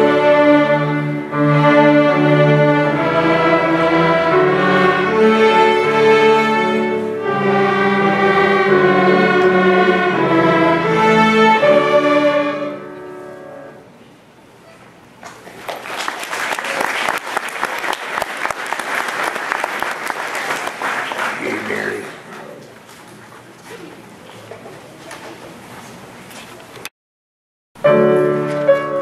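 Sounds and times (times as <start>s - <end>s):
string orchestra playing: 0.0s - 13.8s
audience applause: 15.3s - 22.3s.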